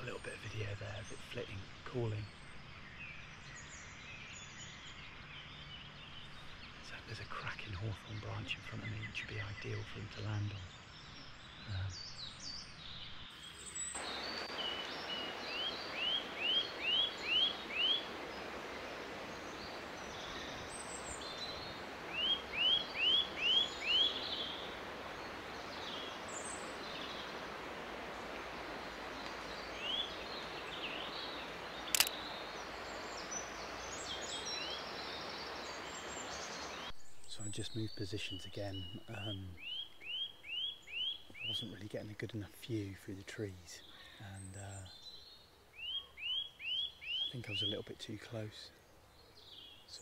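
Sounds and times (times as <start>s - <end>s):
bird singing: 0.0s - 50.0s
woodland background: 0.0s - 50.0s
sharp click: 31.9s - 32.2s.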